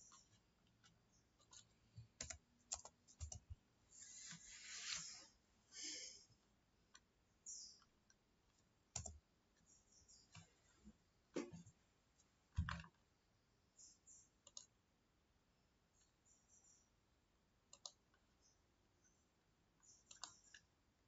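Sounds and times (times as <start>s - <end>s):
faint computer mouse clicks: 14.4s - 14.7s, 17.7s - 18.0s, 19.8s - 20.7s.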